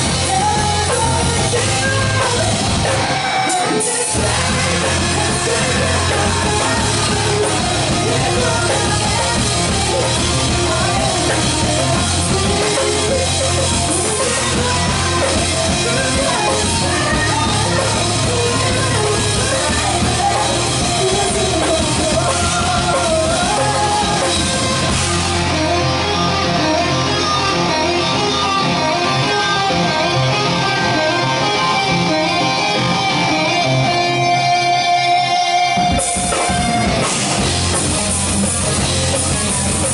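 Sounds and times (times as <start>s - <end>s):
woman singing: 0.0s - 25.0s
drum kit: 0.0s - 30.6s, 31.2s - 39.9s
bass guitar: 0.0s - 39.9s
distorted electric guitars: 0.0s - 39.9s.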